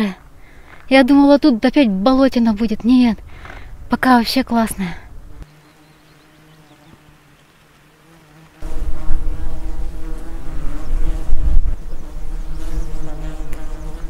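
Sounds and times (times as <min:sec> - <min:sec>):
flies buzzing: 0:04.4 - 0:14.0.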